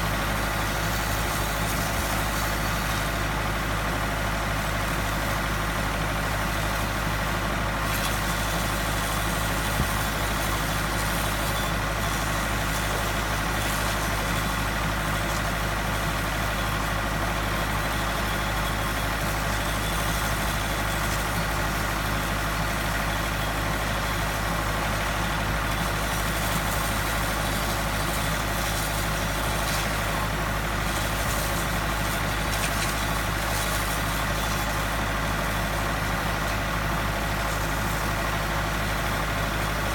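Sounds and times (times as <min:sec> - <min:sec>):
high-pressure water spray hiss: 0:25.2 - 0:38.4.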